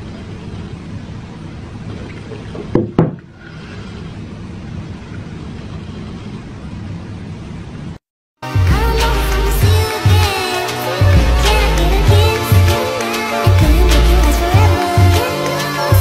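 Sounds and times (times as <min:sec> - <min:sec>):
low noisy rumble: 0:00.0 - 0:08.0.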